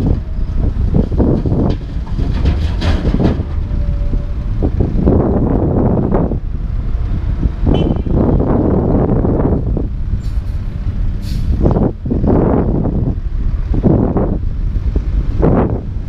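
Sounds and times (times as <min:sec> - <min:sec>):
excavator diesel rumble: 0:00.0 - 0:16.0
concrete banging into steel dump box: 0:01.2 - 0:04.3.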